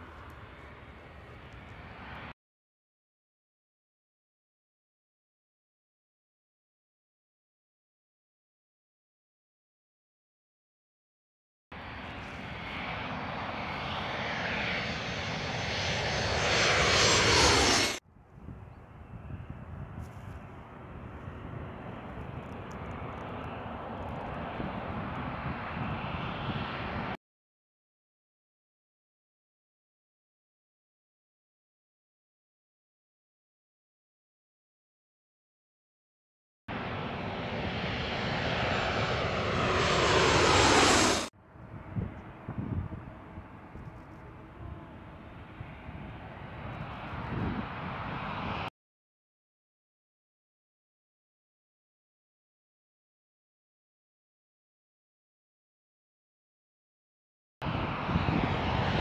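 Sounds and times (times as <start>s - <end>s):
jet engine overhead: 0.0s - 2.3s, 11.8s - 27.2s, 36.7s - 48.7s, 57.6s - 59.0s.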